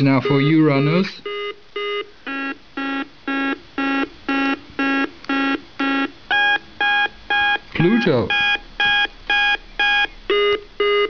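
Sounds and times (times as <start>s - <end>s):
electronic beeper tune: 2.3s - 11.0s.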